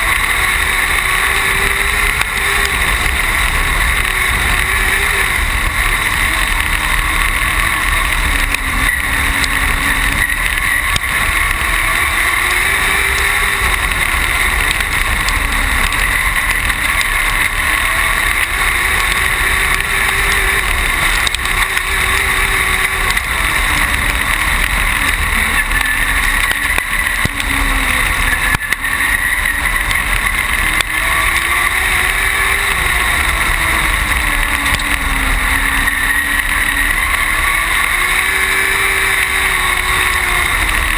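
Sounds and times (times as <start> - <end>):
race car engine running hard: 0.0 - 40.9.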